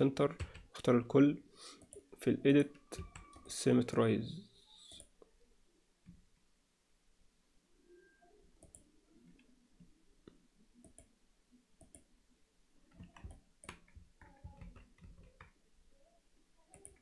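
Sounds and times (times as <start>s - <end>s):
keyboard key presses: 12.9s - 15.6s.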